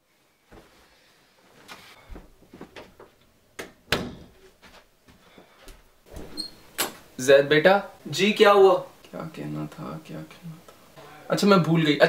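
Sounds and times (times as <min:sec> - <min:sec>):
person walking: 0:00.5 - 0:00.8, 0:01.4 - 0:03.2, 0:04.3 - 0:06.0
door banging shut: 0:03.9 - 0:04.4.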